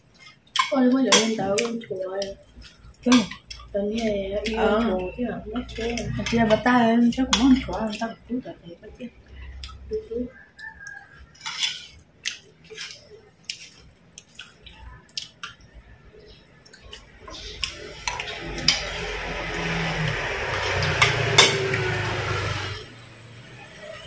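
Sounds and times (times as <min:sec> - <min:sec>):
cutlery clinking on dishes: 0:00.2 - 0:01.8, 0:11.4 - 0:13.7, 0:20.6 - 0:21.8.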